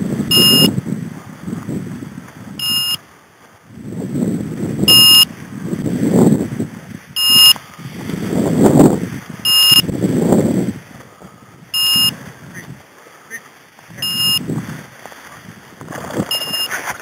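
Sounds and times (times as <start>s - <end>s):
dry grass rustling: 0.0s - 17.0s
high electronic beeps: 0.3s - 0.7s, 2.6s - 3.0s, 4.9s - 5.3s, 7.2s - 7.6s, 9.4s - 9.9s, 11.8s - 12.2s, 14.0s - 14.4s, 16.3s - 16.7s.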